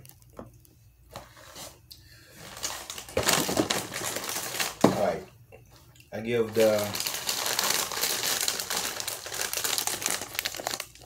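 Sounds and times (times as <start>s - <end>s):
plastic packaging crinkling: 2.4s - 5.2s, 6.4s - 11.0s.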